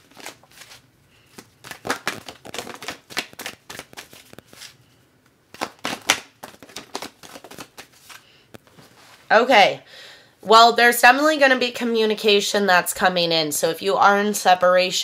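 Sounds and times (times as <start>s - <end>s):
cards being shuffled by hand: 0.0s - 4.8s, 5.5s - 9.0s.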